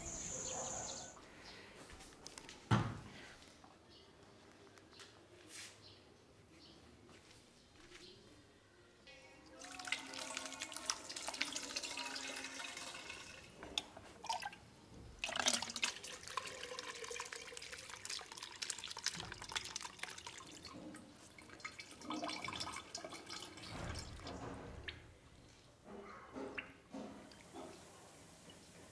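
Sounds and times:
dripping: 9.6 - 14.6, 15.2 - 25.1
liquid pouring and splashing: 9.6 - 14.6, 15.2 - 25.1.

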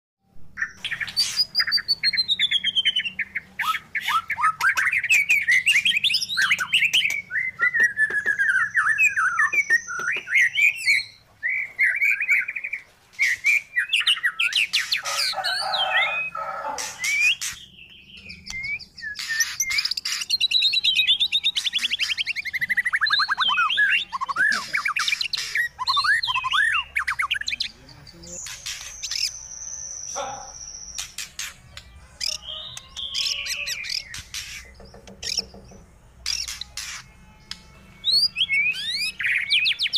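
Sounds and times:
songbird singing whistles: 0.5 - 37.0, 38.0 - 39.9
bird chattering: 30.1 - 31.6, 32.2 - 37.1.

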